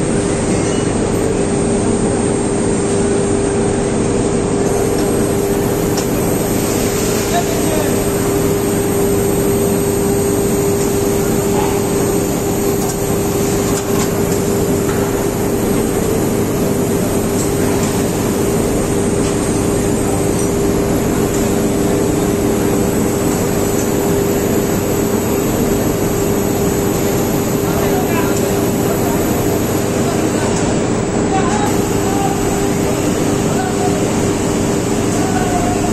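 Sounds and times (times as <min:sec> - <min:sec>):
industrial furnace humming: 0:00.0 - 0:35.9.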